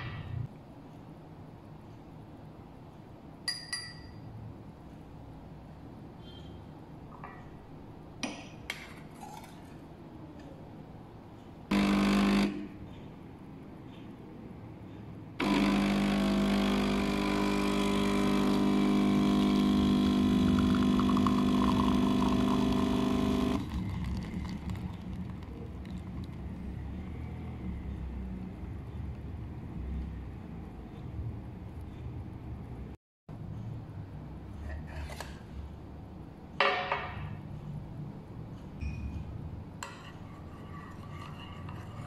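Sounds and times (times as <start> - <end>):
espresso machine pump buzzing: 11.7 - 12.8, 15.4 - 24.9.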